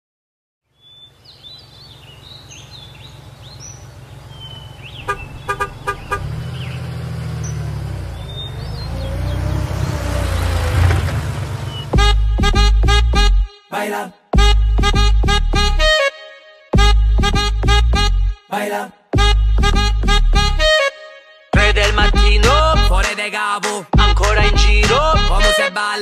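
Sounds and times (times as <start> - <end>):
birds chirping: 0.7 - 12.1
car engine rumble: 1.6 - 13.1
car horn toots: 5.0 - 6.7, 11.7 - 13.5, 19.2 - 23.1, 24.0 - 26.0
music with a beat: 12.0 - 13.5, 14.4 - 16.1, 16.8 - 18.2, 19.2 - 20.8, 21.6 - 26.0.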